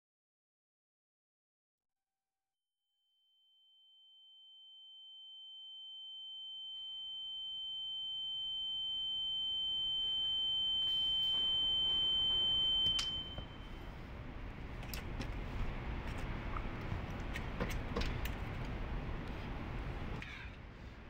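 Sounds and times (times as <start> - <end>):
high-pitched ringing tone: 3.2 - 13.9
click: 12.8 - 13.2.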